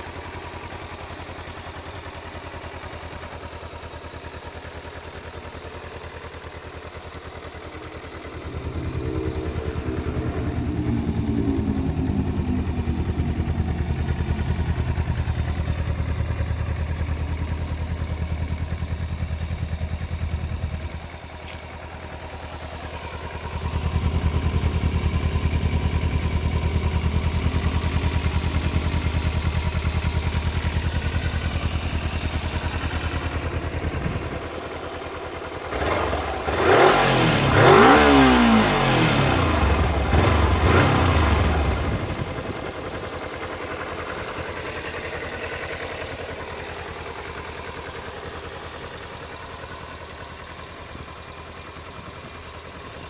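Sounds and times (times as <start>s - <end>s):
motorcycle engine idling: 0.0s - 53.0s
motorcycle engine revving: 0.0s - 53.0s.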